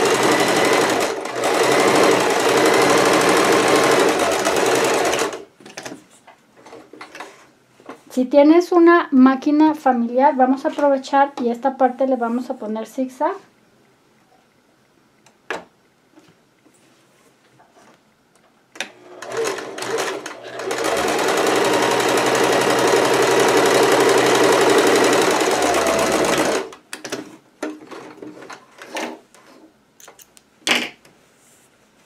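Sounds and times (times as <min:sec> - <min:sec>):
sewing machine stitching: 0:00.0 - 0:05.4, 0:18.8 - 0:27.2.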